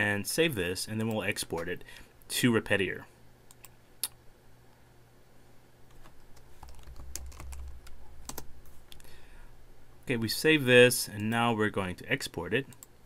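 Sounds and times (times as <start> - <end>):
computer keyboard typing: 5.9 - 8.5.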